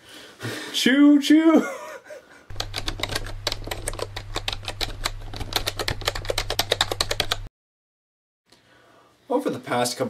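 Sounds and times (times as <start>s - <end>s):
low hum: 2.5s - 7.5s
rapid keystroke clicks: 2.5s - 7.5s.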